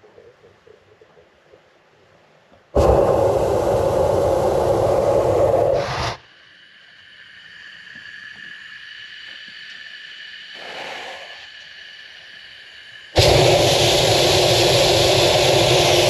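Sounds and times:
propane burner blast: 0:02.8 - 0:06.2, 0:13.1 - 0:16.0
pilot flame hiss and whistle: 0:02.8 - 0:06.4, 0:10.3 - 0:11.8, 0:13.1 - 0:16.0.

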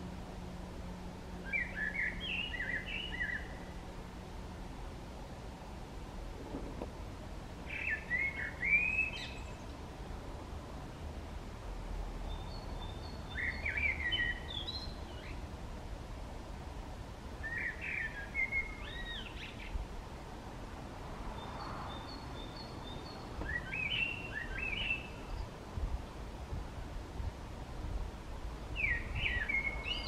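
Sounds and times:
blackbird singing: 0:01.4 - 0:03.7, 0:07.7 - 0:09.7, 0:12.3 - 0:15.4, 0:17.4 - 0:19.8, 0:21.4 - 0:25.5, 0:28.8 - 0:30.0.

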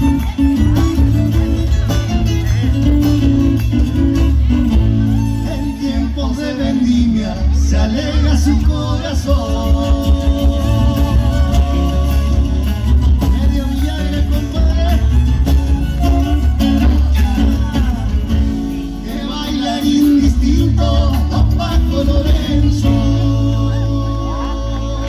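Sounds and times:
heavy bass: 0:00.0 - 0:25.0
live folk band playing: 0:00.0 - 0:25.0
man singing lead: 0:05.0 - 0:25.0.

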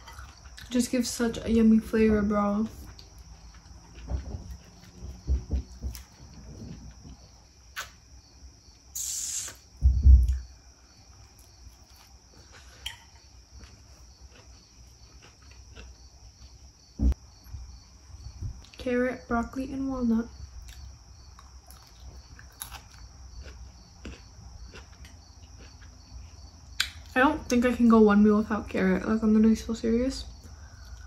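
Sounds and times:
chewing and crunching salad: 0:00.0 - 0:08.0, 0:10.3 - 0:16.9, 0:20.5 - 0:27.2
short hiss: 0:08.9 - 0:09.7
loud low thump: 0:09.8 - 0:10.4, 0:17.0 - 0:17.6.

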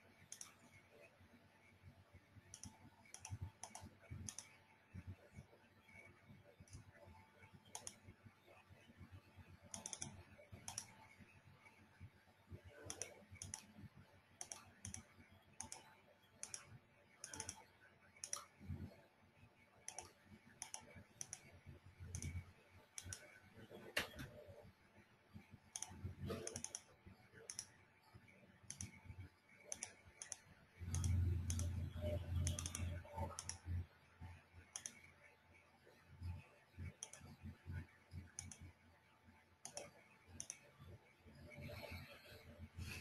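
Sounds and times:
computer keyboard clicks: 0:00.3 - 0:00.6, 0:02.5 - 0:04.6, 0:07.7 - 0:08.1, 0:09.7 - 0:11.0, 0:12.8 - 0:13.8, 0:14.4 - 0:17.6, 0:18.2 - 0:18.6, 0:19.9 - 0:21.5, 0:22.1 - 0:22.4, 0:23.0 - 0:24.4, 0:25.7 - 0:27.8, 0:28.7 - 0:29.0, 0:29.6 - 0:33.8, 0:34.7 - 0:35.1, 0:36.8 - 0:37.4, 0:38.3 - 0:38.7, 0:39.6 - 0:40.6.

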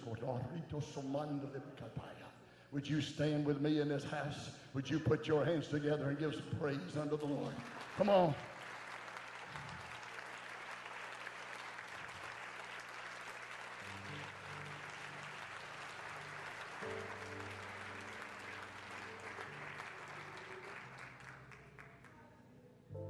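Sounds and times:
congregation applauding: 0:06.8 - 0:22.2
soft sustained chords: 0:13.8 - 0:20.5.

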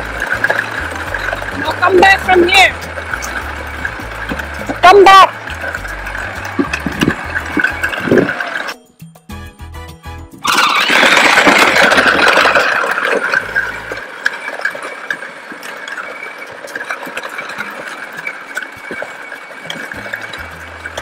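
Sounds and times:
plastic wheels rumbling on concrete: 0:00.0 - 0:08.8, 0:10.4 - 0:21.0.

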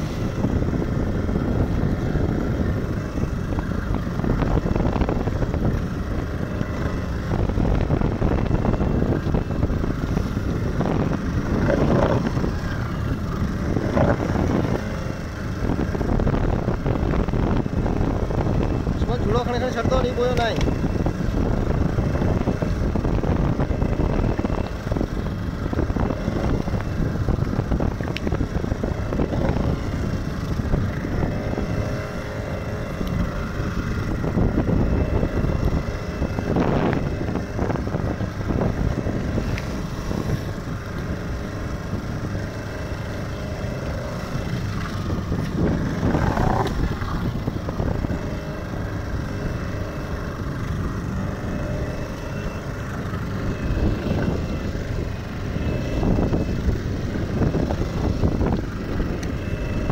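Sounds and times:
boat engine running: 0:00.0 - 0:59.9
water rushing along hull: 0:00.0 - 0:59.9
wind buffeting microphone: 0:00.0 - 0:59.9.

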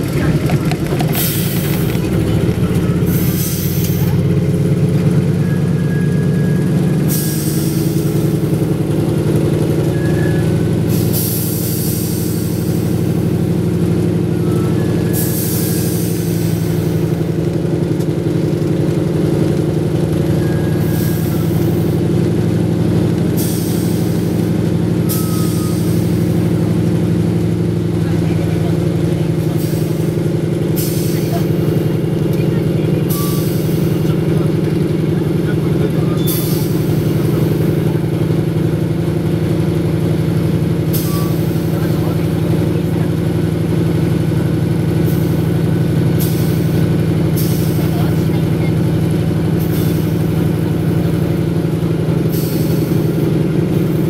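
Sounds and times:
radial aircraft engine running: 0:00.0 - 0:54.0
pneumatic brake hiss: 0:03.1 - 0:04.1, 0:07.1 - 0:08.0, 0:10.9 - 0:12.9, 0:15.1 - 0:17.0, 0:23.4 - 0:24.4, 0:30.8 - 0:31.6, 0:33.1 - 0:34.0, 0:36.2 - 0:37.2, 0:40.9 - 0:41.7, 0:47.4 - 0:47.8, 0:49.6 - 0:50.3, 0:52.3 - 0:53.2.

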